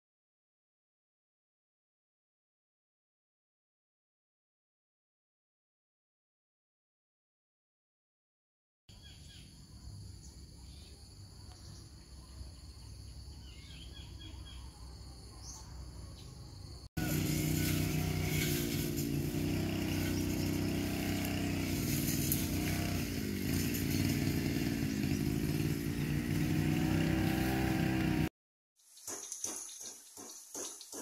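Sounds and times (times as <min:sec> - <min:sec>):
bird chirps: 0:08.9 - 0:16.8, 0:28.8 - 0:31.0
insect buzzing: 0:17.0 - 0:28.3
small engine running: 0:17.0 - 0:28.3.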